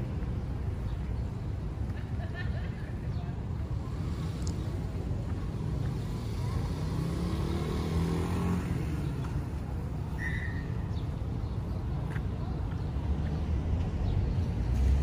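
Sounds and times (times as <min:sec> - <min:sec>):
low rumble of traffic: 0:00.0 - 0:15.0
vehicle driving past: 0:05.9 - 0:09.8.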